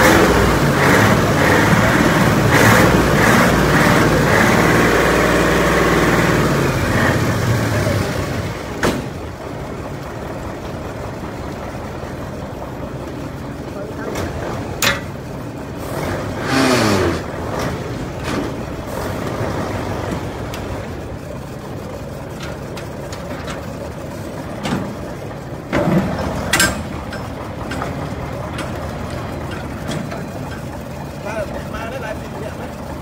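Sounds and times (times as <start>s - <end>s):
sharp metallic clank: 14.8s - 15.2s, 26.5s - 27.4s.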